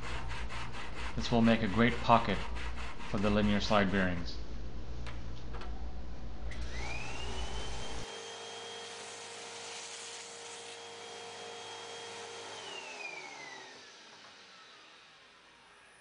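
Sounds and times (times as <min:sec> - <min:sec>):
vacuum cleaner motor whine: 0:06.5 - 0:16.0.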